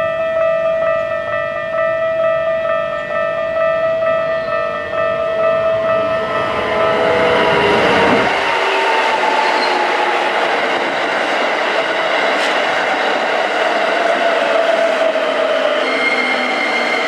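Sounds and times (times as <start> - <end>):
crossing warning tones: 0.0 - 17.0
train whine falling in pitch: 0.0 - 17.0
train wheels on rails: 4.3 - 17.0.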